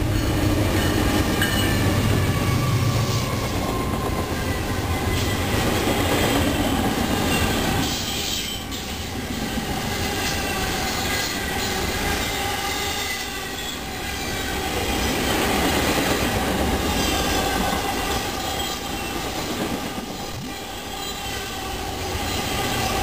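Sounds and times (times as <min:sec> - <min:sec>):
train wheels rumbling on rail: 0:00.0 - 0:23.0
wheel squeal: 0:07.2 - 0:15.4, 0:16.9 - 0:23.0.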